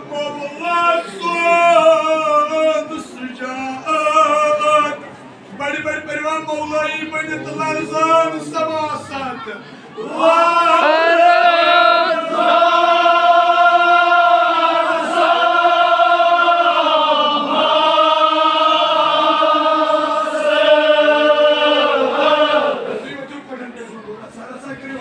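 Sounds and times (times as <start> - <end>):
men chanting: 6.9 - 23.1.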